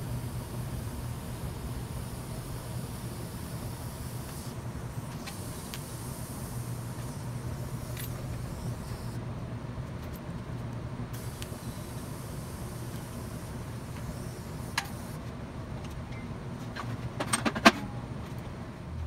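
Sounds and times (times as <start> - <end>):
welding arc hiss: 0.0 - 9.2, 11.1 - 15.3.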